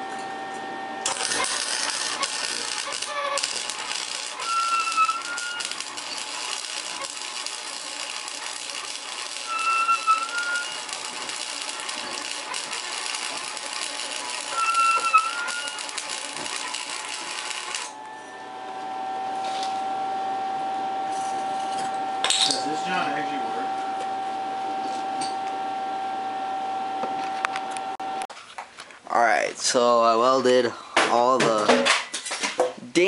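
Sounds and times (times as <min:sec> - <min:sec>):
arc welding crackling: 0:01.0 - 0:18.0.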